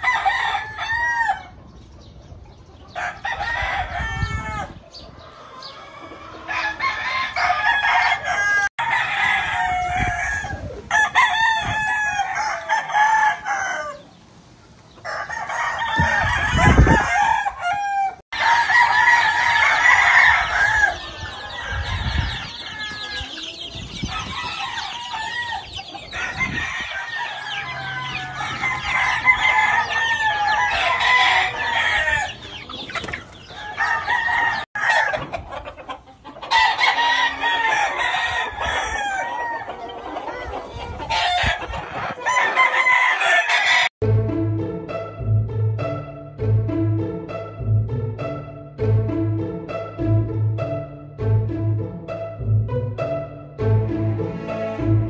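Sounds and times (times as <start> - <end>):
hens clucking: 0.0 - 43.9
roosters crowing: 0.0 - 44.0.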